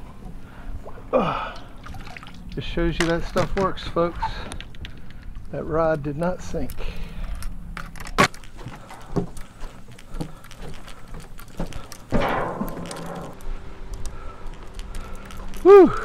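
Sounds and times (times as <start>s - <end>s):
gear knocks and clunks: 2.9s - 15.7s.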